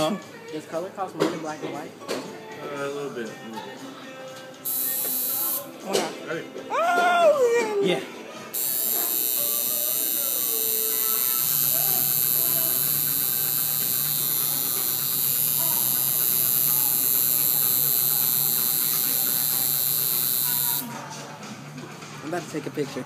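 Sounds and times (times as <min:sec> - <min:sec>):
tattoo machine buzzing: 0:04.6 - 0:05.7, 0:08.5 - 0:20.9.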